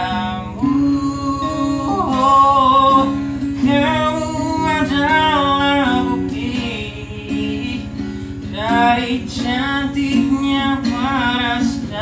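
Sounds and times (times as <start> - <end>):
acoustic guitar strumming: 0.0 - 12.0
person singing long sliding notes: 0.0 - 12.0.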